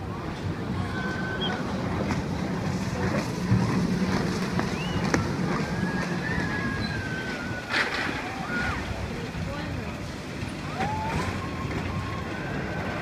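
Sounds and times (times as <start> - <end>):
distant jet ski engine: 0.0 - 13.0
wind buffeting microphone: 0.0 - 13.0
faint high whistling glides: 4.3 - 8.8.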